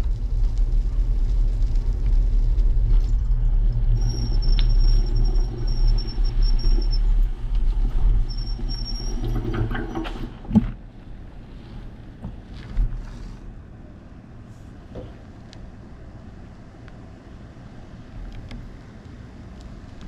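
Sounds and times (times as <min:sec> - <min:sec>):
bicycle rolling over gravel: 0:00.0 - 0:10.4
wind rumble on microphone: 0:00.0 - 0:13.8
thin high squeal: 0:04.0 - 0:07.2, 0:07.9 - 0:10.3.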